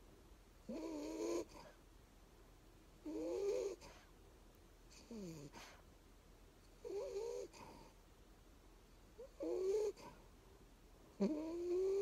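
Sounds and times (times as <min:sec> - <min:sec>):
puppy snoring: 0:00.6 - 0:01.8, 0:03.0 - 0:04.1, 0:04.9 - 0:05.8, 0:06.7 - 0:08.0, 0:09.2 - 0:10.2, 0:11.1 - 0:12.0.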